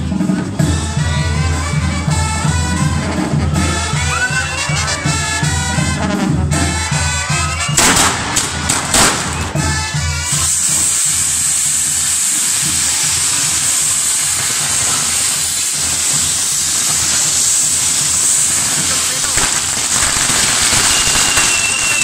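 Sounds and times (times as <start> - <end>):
brass band music: 0.0 - 12.0
fireworks fizzing hiss: 0.2 - 22.0
firework bangs: 0.7 - 22.0.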